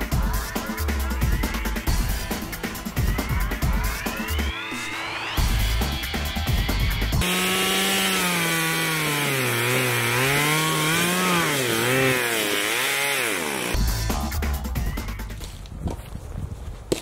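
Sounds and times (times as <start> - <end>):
music with a beat: 0.0 - 7.2
chainsaw cutting log: 7.2 - 13.8.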